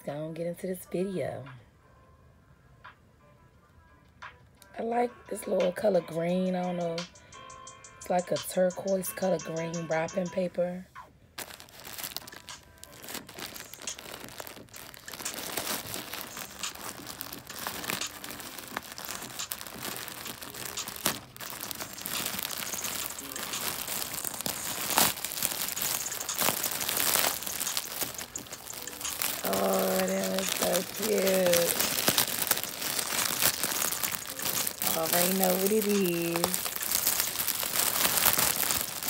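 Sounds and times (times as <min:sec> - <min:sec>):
plastic mailer crinkling and tearing: 0:11.4 - 0:39.0.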